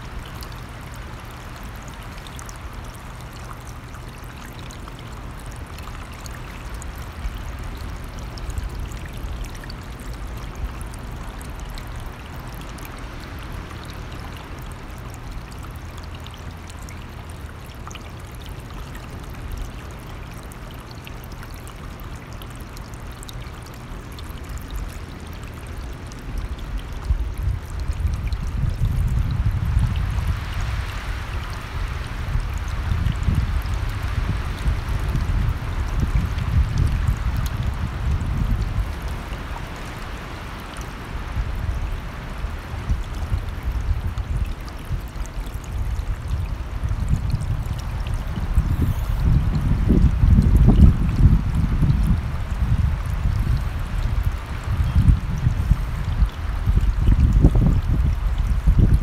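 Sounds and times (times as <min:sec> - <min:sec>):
low wind rumble: 0:00.0 - 0:59.0
mountain stream running: 0:00.0 - 0:59.0.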